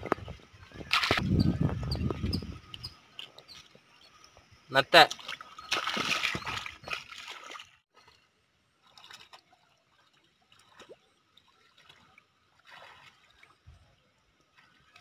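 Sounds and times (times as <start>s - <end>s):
faint water trickles: 1.6s - 15.0s
hands splashing in muddy water: 5.1s - 7.8s.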